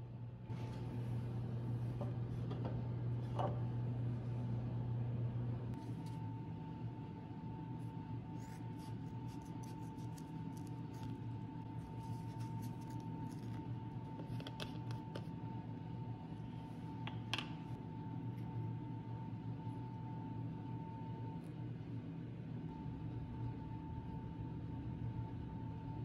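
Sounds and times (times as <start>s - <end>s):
low background hum: 0.0s - 26.0s
scissors snipping through foam: 8.4s - 11.2s.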